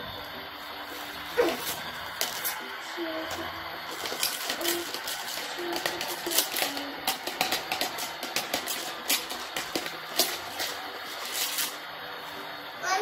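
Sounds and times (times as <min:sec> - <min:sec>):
faint background music: 0:00.0 - 0:13.0
plastic toys being handled: 0:03.3 - 0:11.8
utensil tapping in toy pot: 0:04.0 - 0:10.7.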